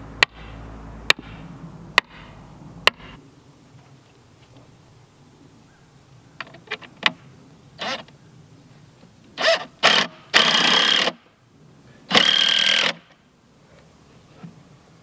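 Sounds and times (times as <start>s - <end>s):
cordless drill driving screws: 9.4s - 11.2s, 12.1s - 13.1s.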